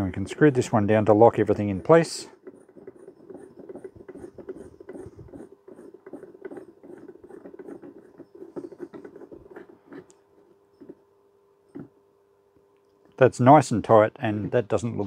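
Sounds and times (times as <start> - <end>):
threads scraping and ticking: 0.4 - 11.0.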